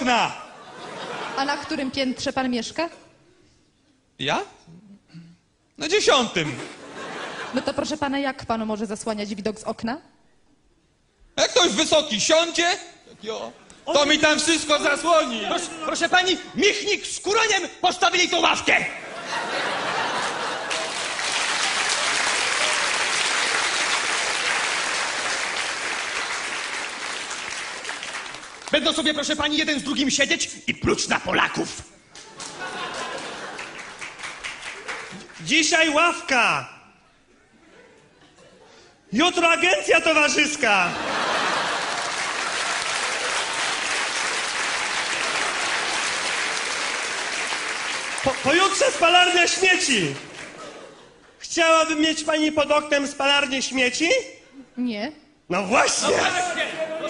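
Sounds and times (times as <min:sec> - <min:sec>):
audience applauding: 0:19.9 - 0:29.2, 0:32.2 - 0:35.6, 0:41.2 - 0:50.8.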